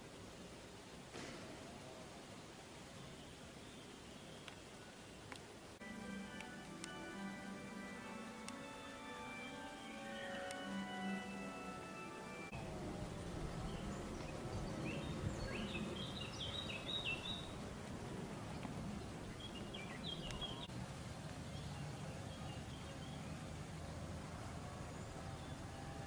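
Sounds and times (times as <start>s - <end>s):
background hiss: 0.0s - 26.0s
small birds chirping: 0.0s - 26.0s
church bell ringing: 5.8s - 12.8s.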